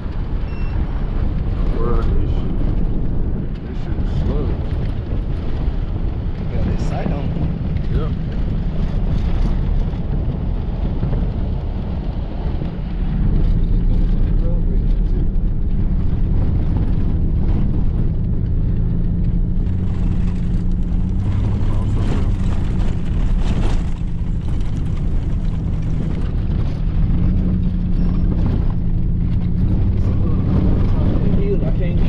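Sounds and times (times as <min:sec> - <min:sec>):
truck engine running: 0:00.0 - 0:32.0
tyres on dirt road: 0:00.0 - 0:32.0.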